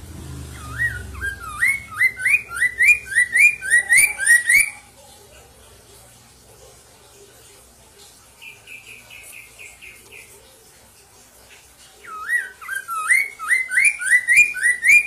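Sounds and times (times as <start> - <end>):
high bird chirps: 0.4 - 5.0, 12.0 - 15.0
bird singing short repeated notes: 0.5 - 4.8.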